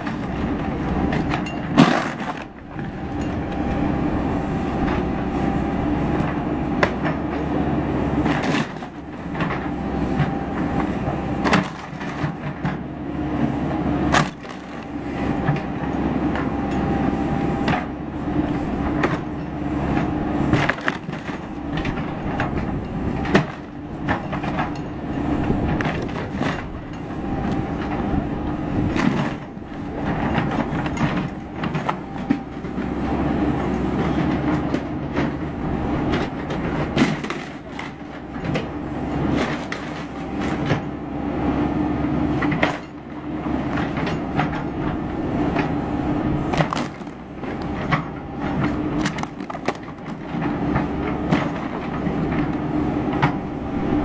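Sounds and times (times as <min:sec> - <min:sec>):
diesel engine running: 0:00.0 - 0:54.0
wood and plastic cracking: 0:36.1 - 0:38.7, 0:46.5 - 0:50.6.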